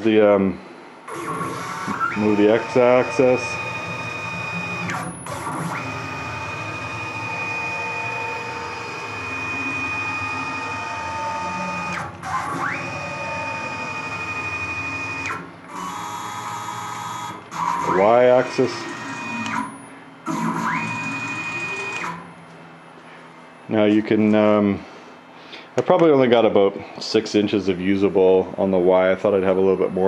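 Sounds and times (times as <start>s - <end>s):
stepper motor whine: 1.1s - 22.4s.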